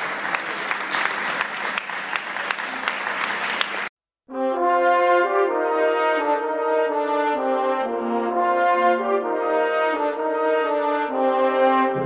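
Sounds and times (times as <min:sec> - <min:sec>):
people applauding: 0:00.0 - 0:03.9.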